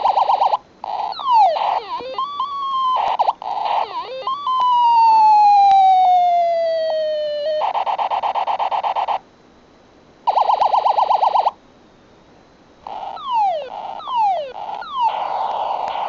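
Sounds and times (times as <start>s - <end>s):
toy ray gun warbling tone: 0.0s - 9.2s, 12.9s - 16.0s.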